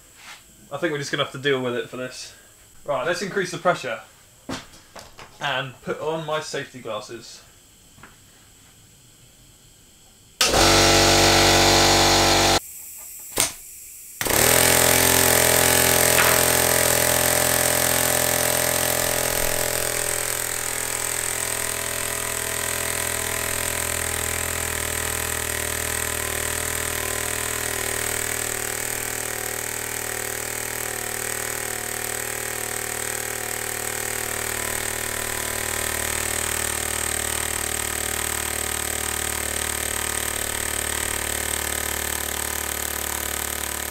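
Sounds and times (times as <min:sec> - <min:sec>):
air piston engine running: 0:10.4 - 0:12.7, 0:14.2 - 0:43.9
air hissing from connector: 0:10.4 - 0:43.5.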